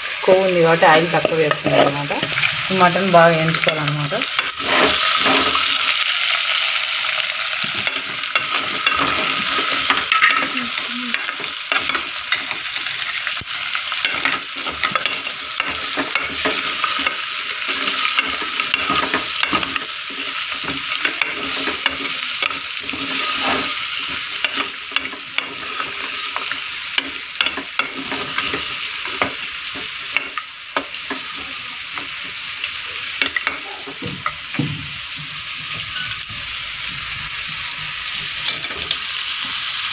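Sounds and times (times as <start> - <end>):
meat sizzling in oil: 0.0 - 39.9
steel ladle scraping pot: 3.6 - 5.9, 11.2 - 29.2.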